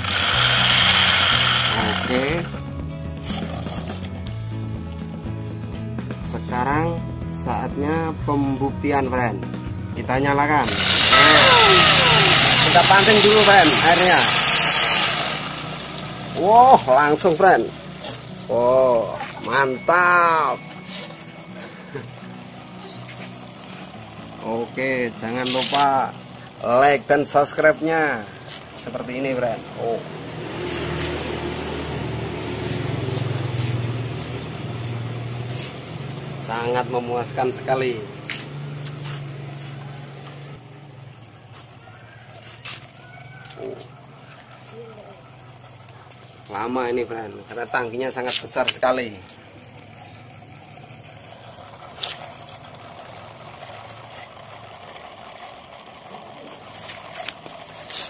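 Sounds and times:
small water pump humming: 0:00.0 - 0:02.4, 0:10.6 - 0:18.4, 0:49.7 - 0:58.0
water gushing from hose: 0:00.0 - 0:02.4, 0:10.7 - 0:18.3
small motor humming: 0:00.0 - 0:03.8, 0:10.4 - 0:37.1.

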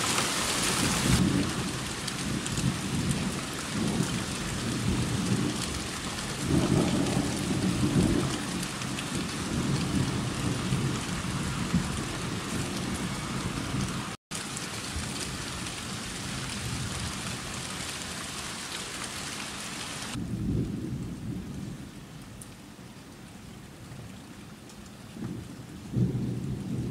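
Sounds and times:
heavy rain: 0:00.0 - 0:26.9
rolling thunder: 0:01.1 - 0:14.1, 0:20.1 - 0:21.8, 0:25.2 - 0:26.9.

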